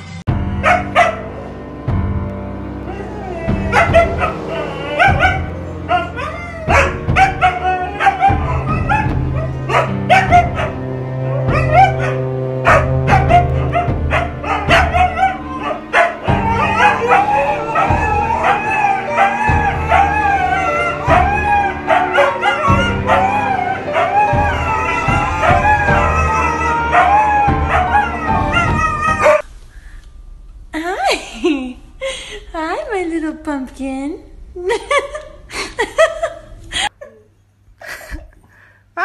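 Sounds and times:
huskies howling: 2.7s - 29.4s
music with steady bass line: 3.5s - 18.7s, 22.7s - 29.4s.

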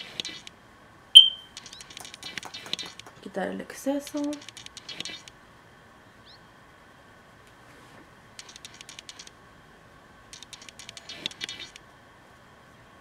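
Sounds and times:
makeup brush ticking and scratching: 1.6s - 3.2s, 4.1s - 5.3s, 8.4s - 9.3s, 10.4s - 11.8s.

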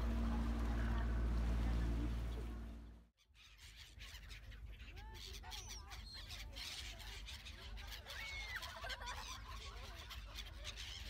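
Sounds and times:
low rumble: 0.0s - 3.1s
gulls calling: 0.0s - 11.0s.

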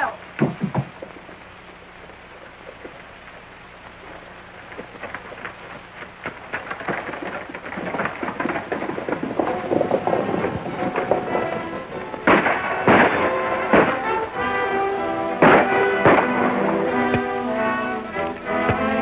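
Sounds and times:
soundtrack hiss: 0.0s - 19.0s
clatter of rapid knocks: 0.4s - 1.4s, 4.7s - 14.6s
music: 9.4s - 19.0s.

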